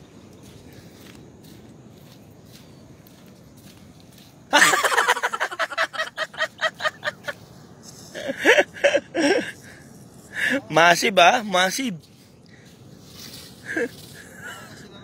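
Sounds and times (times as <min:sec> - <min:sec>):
person laughing: 0:04.5 - 0:07.5, 0:08.1 - 0:09.7, 0:13.6 - 0:14.9.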